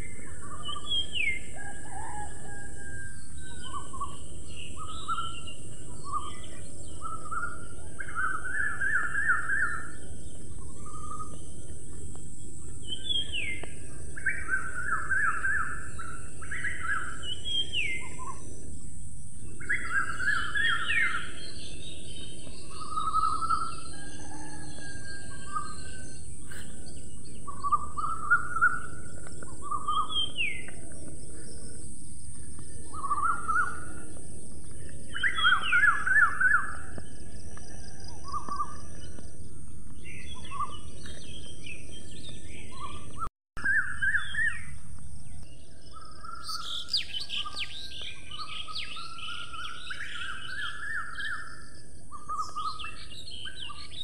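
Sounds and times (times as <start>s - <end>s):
bird whistles and trills: 19.6s - 31.7s, 32.9s - 34.0s, 34.7s - 37.0s, 45.9s - 54.0s.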